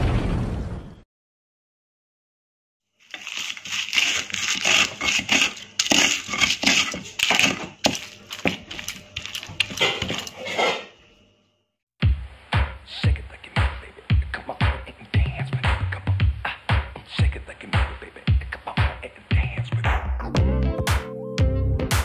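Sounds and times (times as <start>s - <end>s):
hand mashing food squishily: 3.0s - 10.4s
music with steady beat: 12.0s - 22.0s.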